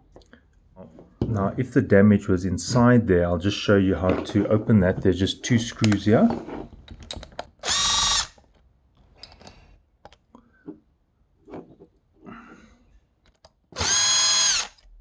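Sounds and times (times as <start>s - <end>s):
power drill motor whine: 7.6s - 8.4s, 13.8s - 14.9s.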